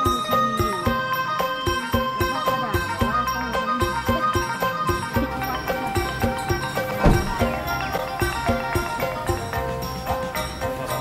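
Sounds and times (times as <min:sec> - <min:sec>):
background music: 0:00.0 - 0:11.0.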